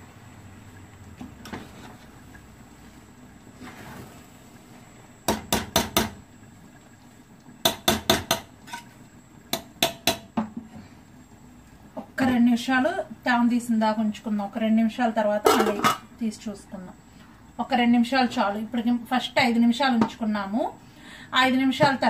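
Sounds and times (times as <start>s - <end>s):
soft stirring of rice: 0.7s - 5.1s
metal ladle clinking in a pot: 8.2s - 8.9s.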